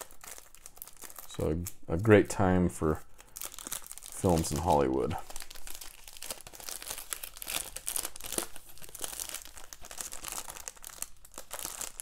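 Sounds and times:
plastic wrap tearing and crinkling: 0.0s - 2.1s, 2.8s - 12.0s.

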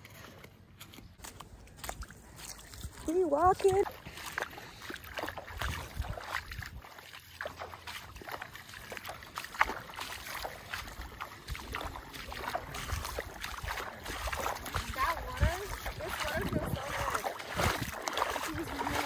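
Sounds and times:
footsteps wading through water: 0.0s - 19.0s
water splashing and sloshing: 0.0s - 19.0s
wind rumble on microphone: 5.5s - 6.9s, 11.4s - 19.0s.

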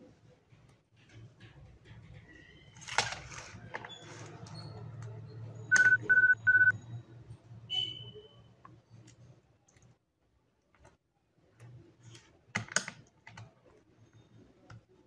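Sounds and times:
short electronic beeps: 5.7s - 6.8s.

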